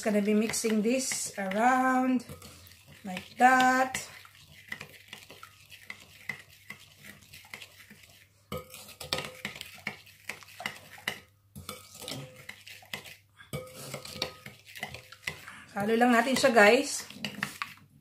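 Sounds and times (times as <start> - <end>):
metal spoon clinking in glass bowl: 8.5 - 9.6, 10.6 - 12.6, 13.5 - 16.6.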